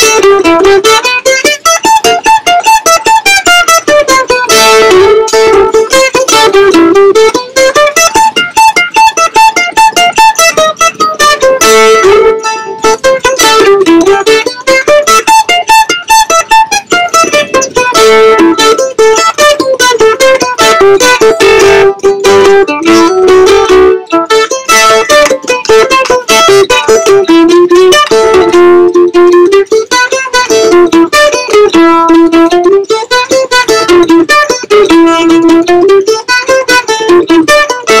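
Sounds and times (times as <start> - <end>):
mandolin fast picked melody: 0.0 - 38.0.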